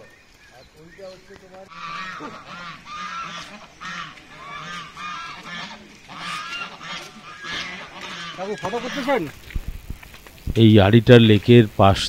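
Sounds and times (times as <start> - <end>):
geese honking: 1.4 - 9.4.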